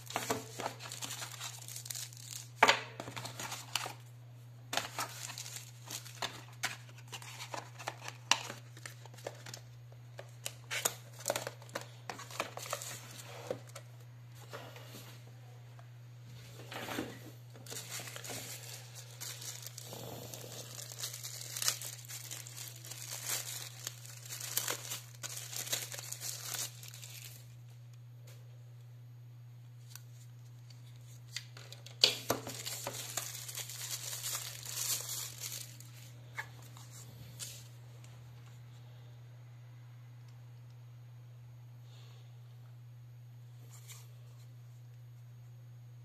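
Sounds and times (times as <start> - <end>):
plastic bags crinkling: 0.0 - 4.1, 4.7 - 13.8, 17.6 - 27.5, 31.6 - 36.1.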